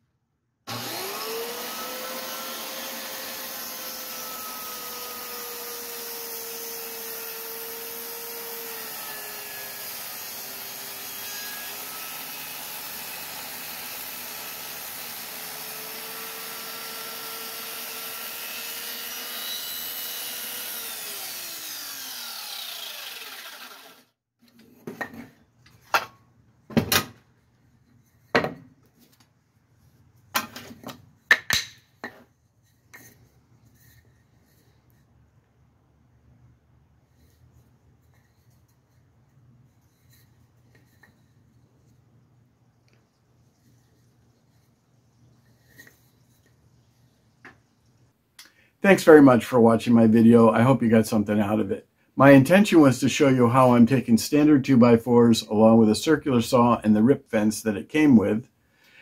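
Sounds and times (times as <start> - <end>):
circular saw cutting wood: 0.7 - 24.2.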